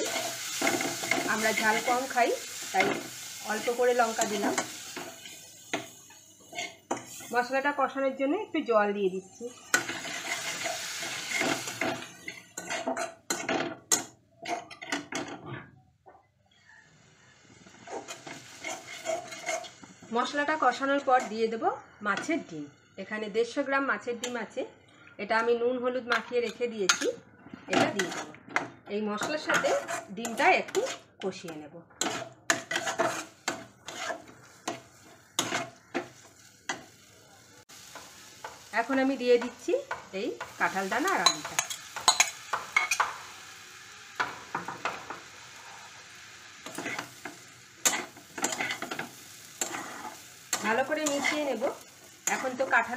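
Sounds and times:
metal spatula scraping pan: 0.0 - 7.4, 9.5 - 13.5, 17.7 - 19.8, 27.7 - 28.4, 29.2 - 31.1, 32.0 - 37.0, 46.6 - 52.9
water sizzling in hot pan: 0.0 - 14.0, 17.0 - 21.7, 32.0 - 52.9.

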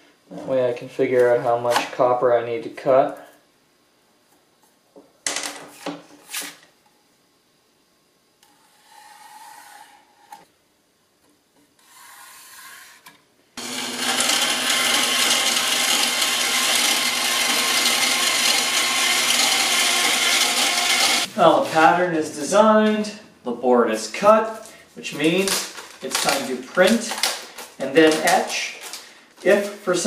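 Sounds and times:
bandsaw cutting board: 11.8 - 22.0, 24.5 - 29.8
motor hum: 13.6 - 21.4.

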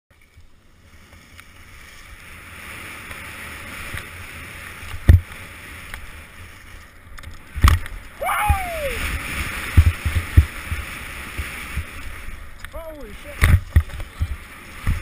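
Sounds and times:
skis scraping over snow: 0.1 - 15.0
wind rumble on microphone: 0.2 - 15.0.

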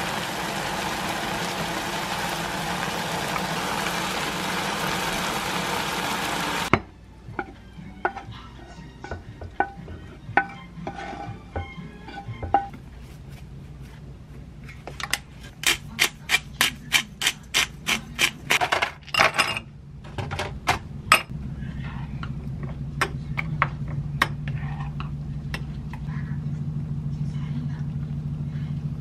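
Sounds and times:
low steady hum: 19.1 - 29.0.

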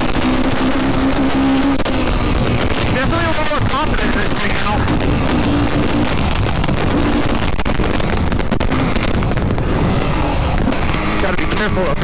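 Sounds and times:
quad bike engine running: 0.0 - 12.0
wind buffeting on microphone: 2.1 - 11.2.

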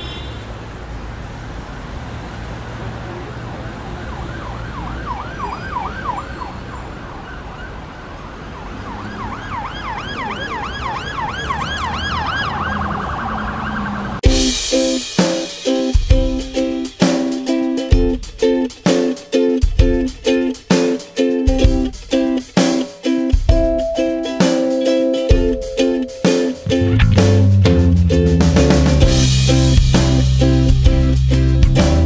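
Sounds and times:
road traffic rumble: 0.0 - 32.0
emergency siren yelping: 3.9 - 14.2
plucked-string music with a beat: 14.2 - 32.0.

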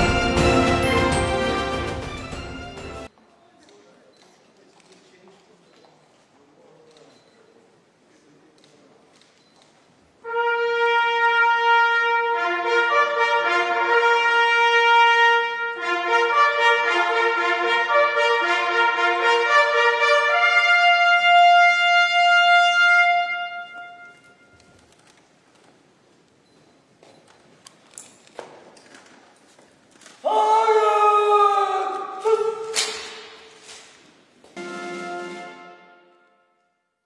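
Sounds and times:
brass band playing fanfare: 0.0 - 3.1, 10.2 - 24.4, 34.6 - 36.4.

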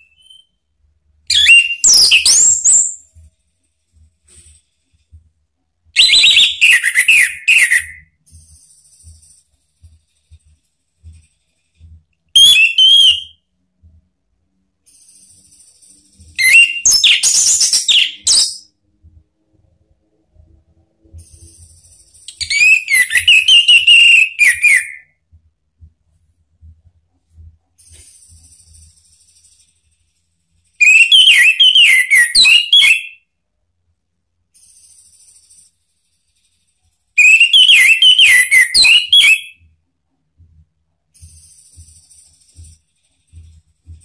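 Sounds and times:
thrush singing whistled notes: 12.4 - 13.4, 22.3 - 25.1, 30.8 - 33.2, 37.2 - 39.6.

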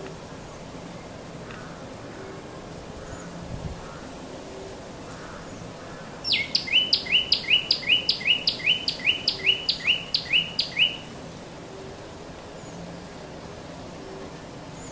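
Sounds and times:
bird singing repeated two-part notes: 6.3 - 11.1.

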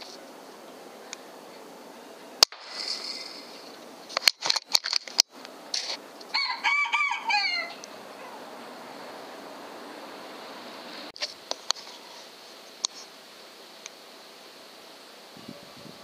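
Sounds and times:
sharp crack: 2.4 - 6.0
rooster crowing: 6.3 - 8.7.

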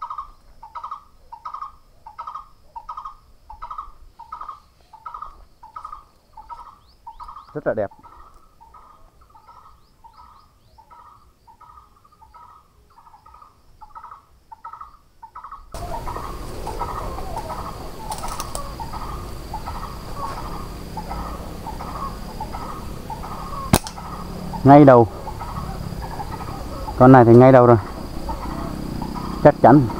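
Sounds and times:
short bird calls: 0.0 - 29.9
high insect trill: 15.7 - 29.9
slingshot snap: 23.7 - 24.0.

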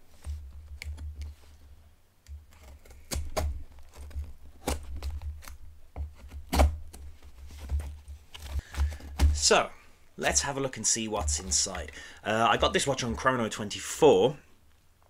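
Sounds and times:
cardboard box thuds: 7.6 - 9.5.

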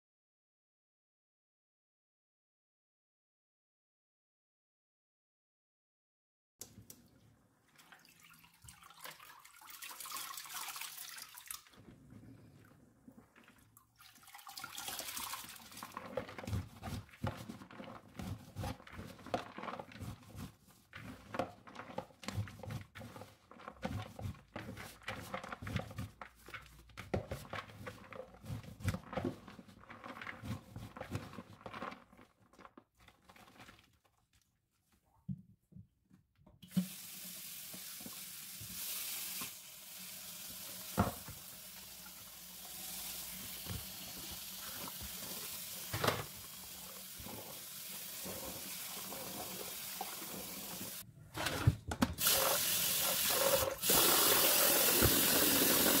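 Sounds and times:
running water: 7.0 - 17.4, 36.6 - 51.0, 52.2 - 56.0.

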